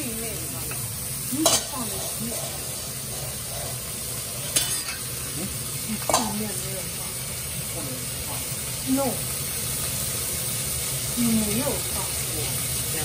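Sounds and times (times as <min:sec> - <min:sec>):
meat sizzling in oil: 0:00.0 - 0:13.0
metal clinks on pot: 0:04.4 - 0:05.3.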